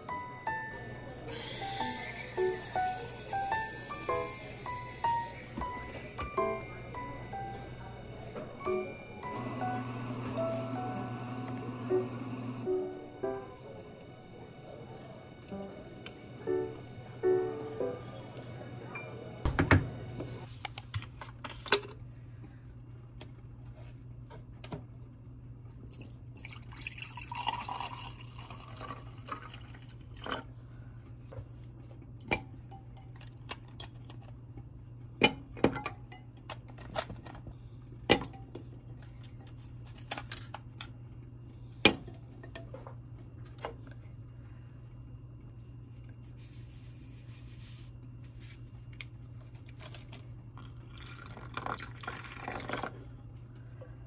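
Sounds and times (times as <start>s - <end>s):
steady low hum: 0.0s - 54.0s
milk pouring into mug: 25.7s - 30.6s, 50.5s - 53.2s.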